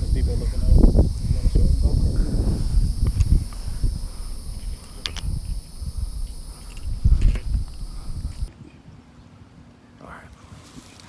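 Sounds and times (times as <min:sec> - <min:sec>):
insects buzzing: 0:00.0 - 0:08.5
wind rumble: 0:00.0 - 0:08.5
camera handling bumps: 0:04.6 - 0:05.4.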